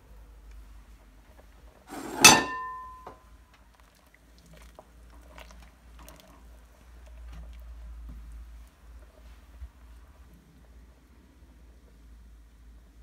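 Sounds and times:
spoon knocking pot: 0:01.9 - 0:03.2.

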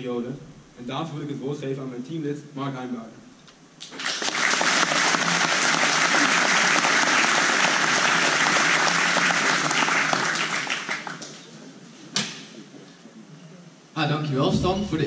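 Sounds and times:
audience applauding: 0:03.8 - 0:11.7.

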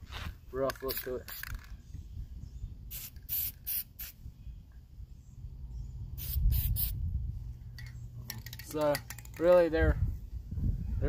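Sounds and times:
aerosol spray paint bursts: 0:02.9 - 0:04.2, 0:06.2 - 0:07.0.

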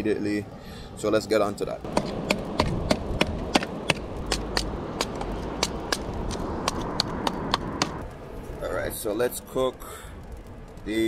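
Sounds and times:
machete chopping wood: 0:01.9 - 0:08.0.

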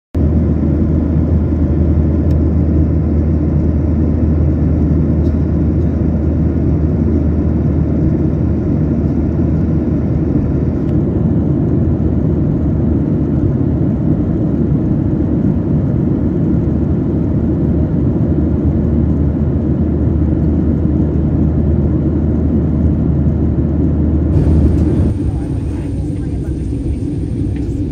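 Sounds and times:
jet engines deep rumble: 0:00.2 - 0:27.9
airflow past fuselage: 0:24.3 - 0:27.9.

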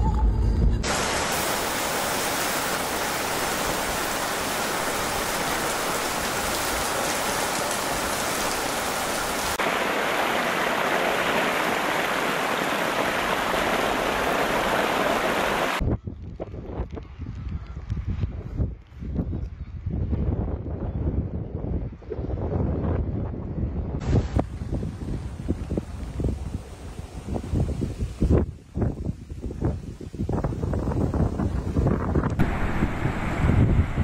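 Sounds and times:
heavy rain pouring: 0:00.8 - 0:15.8, 0:32.4 - 0:34.0
runoff water rushing: 0:00.8 - 0:15.8, 0:24.0 - 0:34.0
wind buffeting microphone: 0:15.6 - 0:34.0.

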